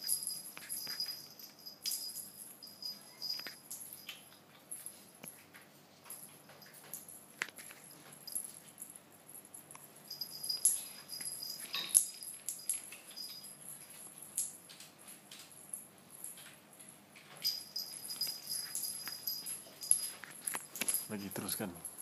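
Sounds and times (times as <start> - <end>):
faint high jingling ball: 0.0 - 5.4, 6.1 - 22.0
toy tapping and scraping on tile: 3.2 - 4.4.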